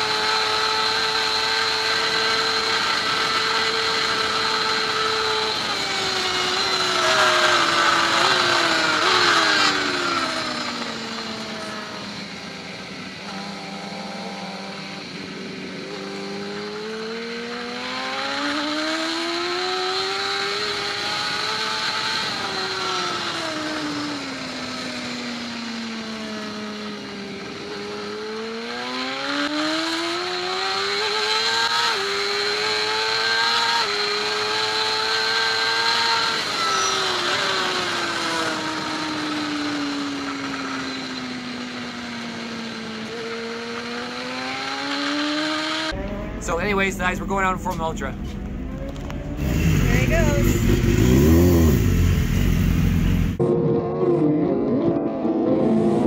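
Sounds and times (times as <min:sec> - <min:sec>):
motorcycle engine at racing revs: 0:00.0 - 0:56.0.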